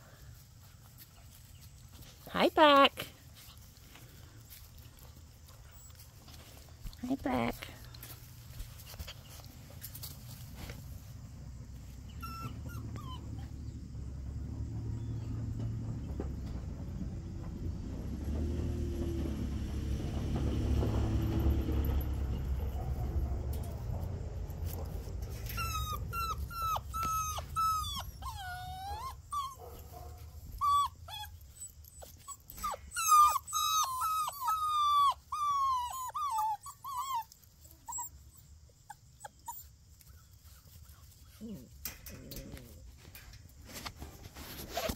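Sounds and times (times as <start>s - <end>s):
puppies whining: 4.7s - 6.9s, 11.8s - 14.0s, 24.8s - 29.8s, 30.4s - 43.3s
low rumble: 13.0s - 26.6s.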